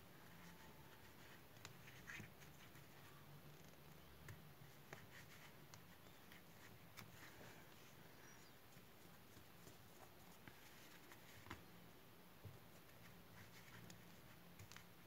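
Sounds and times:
faint low hum: 0.0 - 15.0
crochet hook scratching yarn: 0.2 - 11.4.

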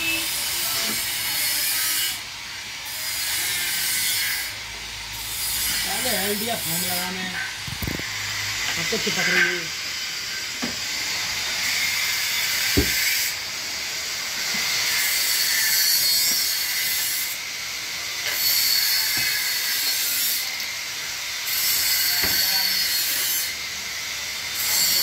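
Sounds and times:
light knocks on wooden frame: 12.8 - 13.0.

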